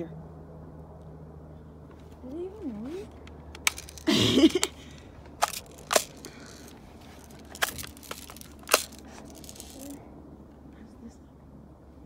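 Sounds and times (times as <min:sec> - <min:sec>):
sharp clicks: 0:03.2 - 0:10.0.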